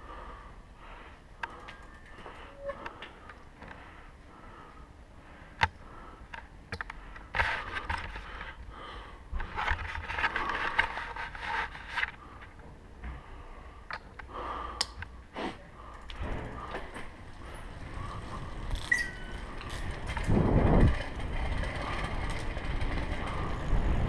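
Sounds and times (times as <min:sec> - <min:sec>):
bike rattling over cobblestones: 0:01.4 - 0:03.9, 0:15.8 - 0:24.0
brief squeak: 0:18.8 - 0:19.4.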